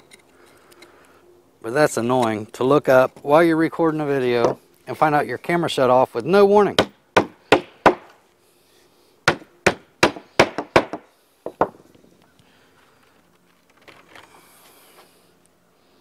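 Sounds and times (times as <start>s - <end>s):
hammer tapping wood: 9.3s - 11.8s
faint handling of wood: 11.4s - 15.5s.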